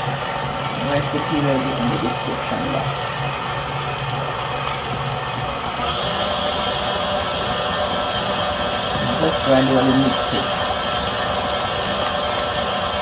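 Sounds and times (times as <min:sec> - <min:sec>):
stand mixer motor humming: 0:00.0 - 0:13.0.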